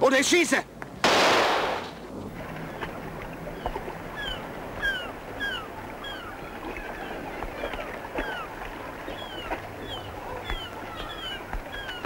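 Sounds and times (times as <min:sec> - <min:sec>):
loud sudden burst of noise: 0:01.0 - 0:01.9.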